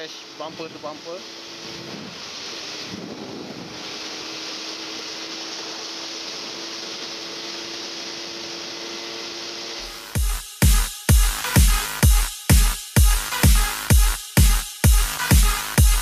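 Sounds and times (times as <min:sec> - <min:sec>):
motorcycle engine hum: 0:00.0 - 0:10.1
wind rush: 0:00.3 - 0:07.4
electronic dance music: 0:09.8 - 0:16.0.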